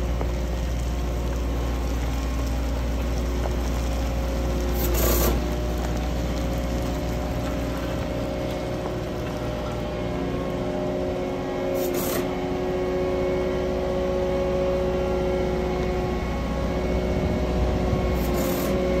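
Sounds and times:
grading box pushing through gravel: 0.0s - 10.8s, 17.9s - 19.0s
diesel engine running: 0.0s - 19.0s.

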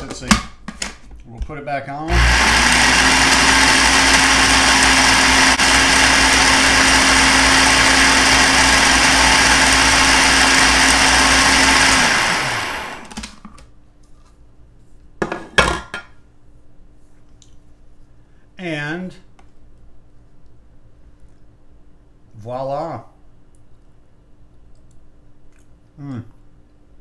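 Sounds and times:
food processor running: 2.1s - 13.3s.

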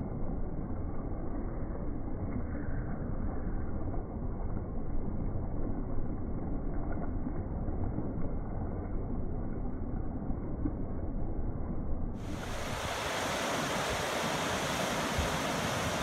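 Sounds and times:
stream rushing over rocks: 12.2s - 16.0s.

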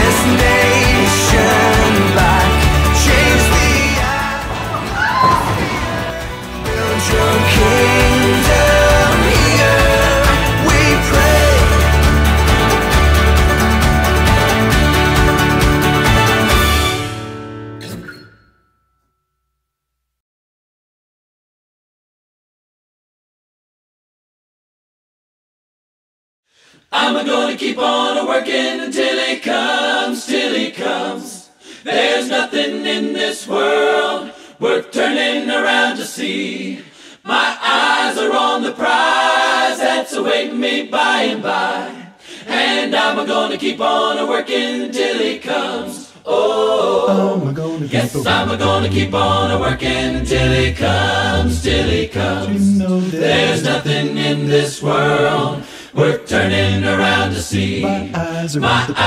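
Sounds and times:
unaccompanied choir singing: 0.0s - 12.5s, 26.9s - 59.0s
low bass voices singing: 0.0s - 16.5s, 41.0s - 59.0s.

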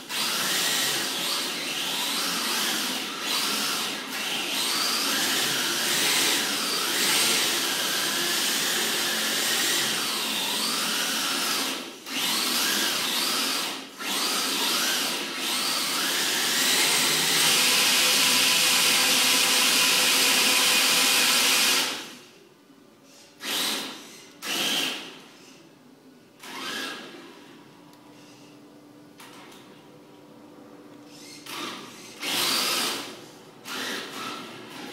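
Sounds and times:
electric rc car motor whine: 0.1s - 22.1s.

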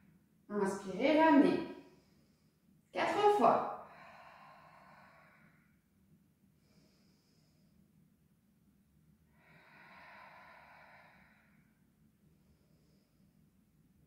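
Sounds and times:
woman breathing while exercising: 1.4s - 2.9s, 3.5s - 8.4s, 9.2s - 14.0s.

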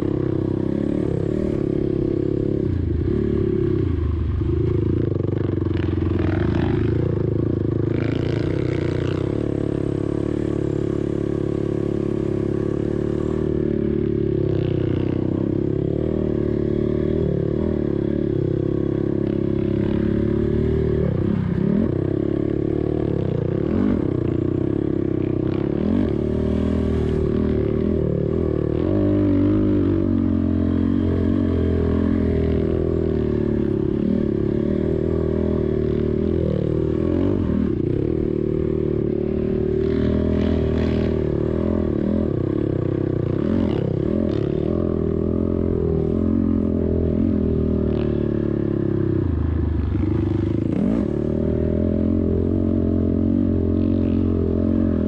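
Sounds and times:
quad bike engine running: 0.0s - 55.0s.

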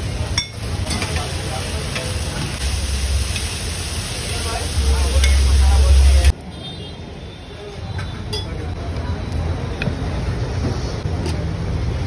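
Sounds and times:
food sizzling on griddle: 0.0s - 6.3s
low rumble: 2.6s - 6.3s.

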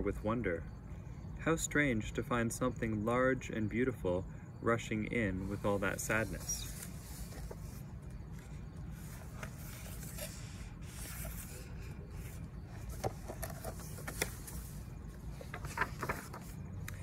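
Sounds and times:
book pages rustling and clicking: 6.2s - 17.0s.

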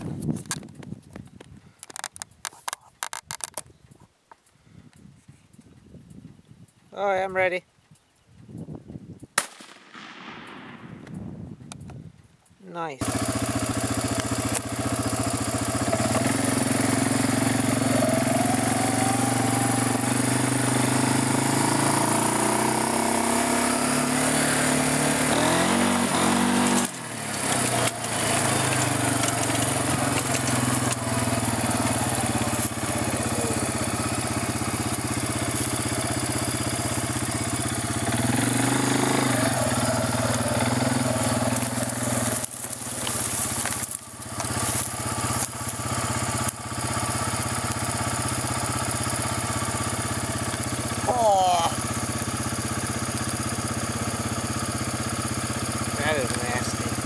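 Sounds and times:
engine running: 12.8s - 57.0s.

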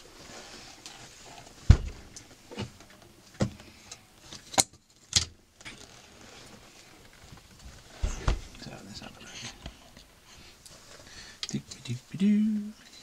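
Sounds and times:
heavy thump: 1.7s - 2.0s, 8.0s - 8.6s.

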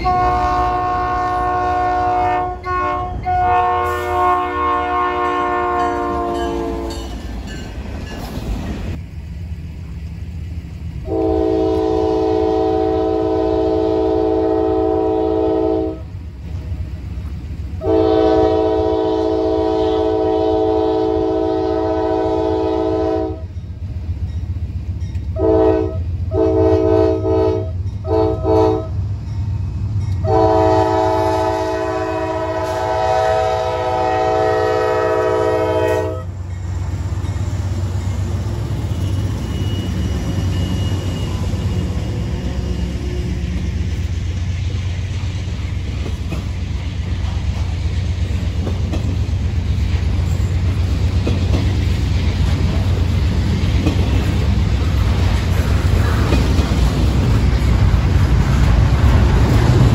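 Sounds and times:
locomotive air horn blasts: 0.0s - 7.1s, 11.0s - 16.1s, 17.8s - 23.5s, 25.3s - 29.0s, 30.2s - 36.4s
low locomotive engine rumble: 0.0s - 59.9s.

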